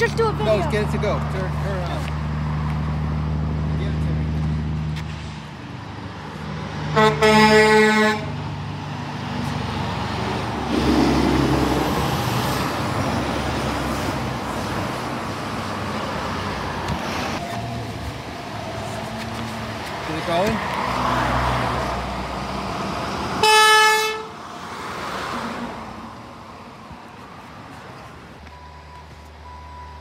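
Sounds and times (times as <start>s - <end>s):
truck passing by: 0.0s - 30.0s
truck air horn blowing: 6.9s - 8.4s, 23.4s - 24.4s.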